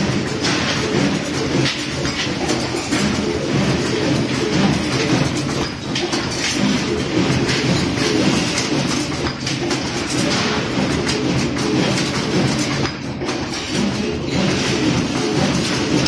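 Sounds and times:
rebar bending machine clattering: 0.0 - 16.0.

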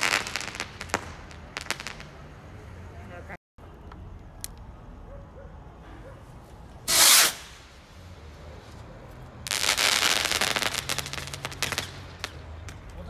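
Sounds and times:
firework blast: 0.0 - 2.3, 6.8 - 7.8, 9.4 - 12.8
firework crackling: 0.0 - 2.4, 6.8 - 8.8, 9.4 - 13.0.

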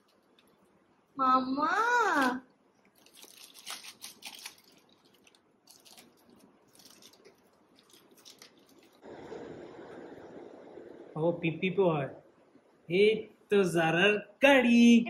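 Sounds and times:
plastic bag rustling: 2.9 - 9.1.

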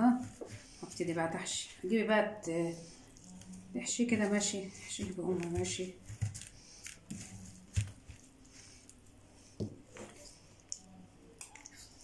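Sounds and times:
hands squishing wet stuffing: 0.0 - 1.6.

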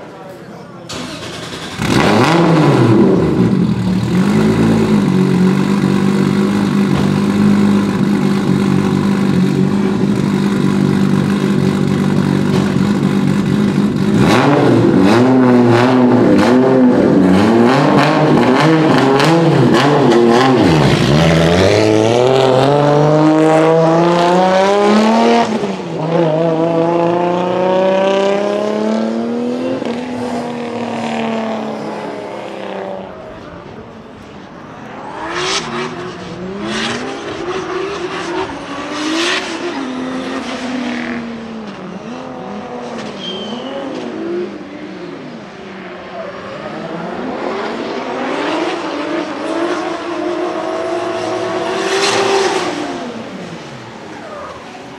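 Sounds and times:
car engine revving: 0.9 - 54.9
exhaust pops: 4.0 - 14.2.

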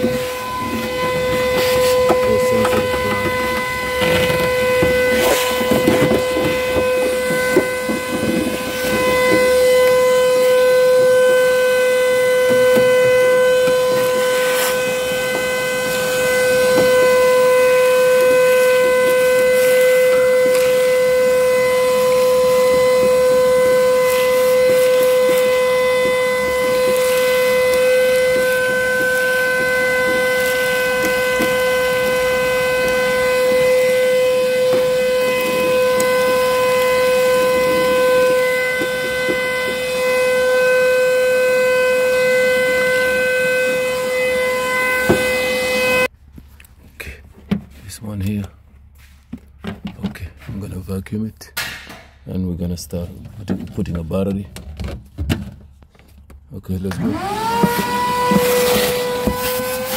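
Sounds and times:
vacuum cleaner running: 0.0 - 46.2, 56.8 - 59.9.

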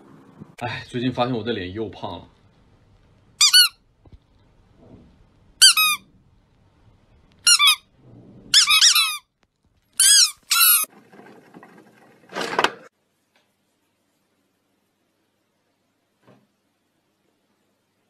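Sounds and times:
squeaky toy squeaking: 3.4 - 3.8, 5.6 - 6.0, 7.4 - 7.8, 8.5 - 9.3, 10.0 - 10.9.

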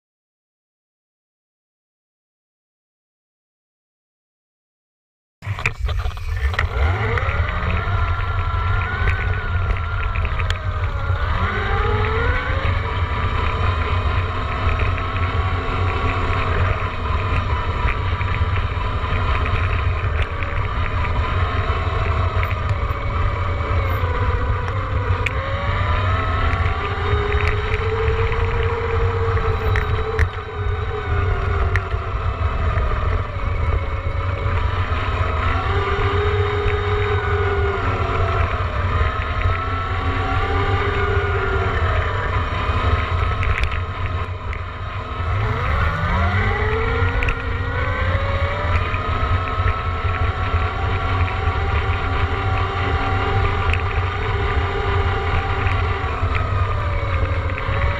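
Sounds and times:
electric motorbike motor whining: 5.4 - 57.9
wind buffeting microphone: 5.4 - 57.9.

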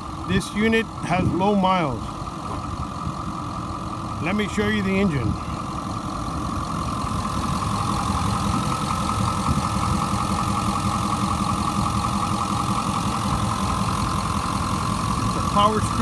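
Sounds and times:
diesel engine idling: 0.0 - 16.0.

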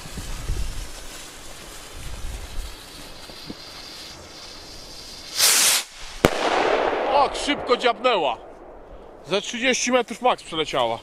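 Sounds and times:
wind rumbling on microphone: 0.0 - 5.1
firework rocket whoosh: 0.0 - 9.4.

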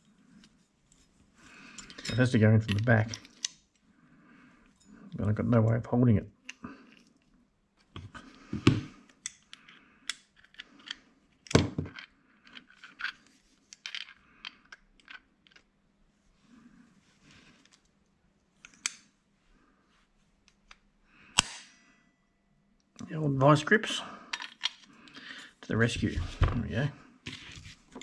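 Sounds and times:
metal tools clicking and clanking: 1.7 - 3.5.

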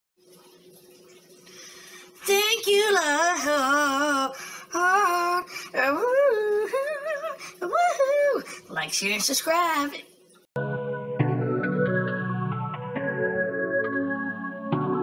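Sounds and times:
high voice singing with vibrato: 2.2 - 8.5.

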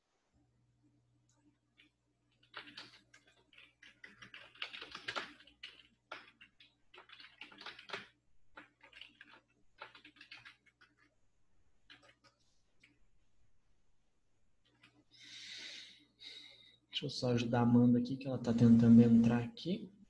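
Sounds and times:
computer keyboard typing: 1.8 - 11.2, 11.8 - 13.0, 14.6 - 15.0.

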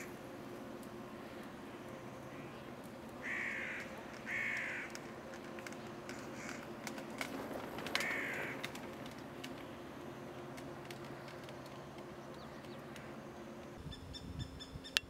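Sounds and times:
crow cawing: 3.2 - 5.0, 6.1 - 6.7, 8.0 - 8.8.

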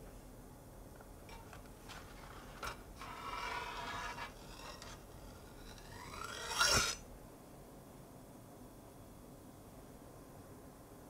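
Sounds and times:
metal spatula scraping metal tin: 2.3 - 7.0.

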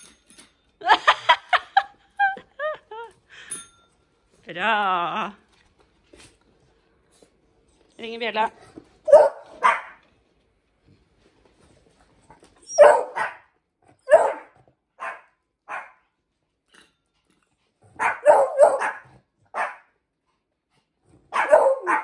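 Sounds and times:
dog barking: 9.1 - 10.0, 12.8 - 13.5, 14.1 - 16.0, 18.0 - 19.9, 21.3 - 22.0.

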